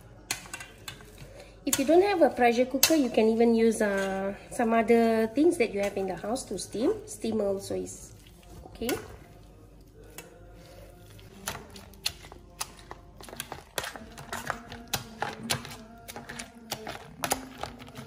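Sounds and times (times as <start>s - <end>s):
potato masher clinking on metal bowl: 11.5s - 18.0s.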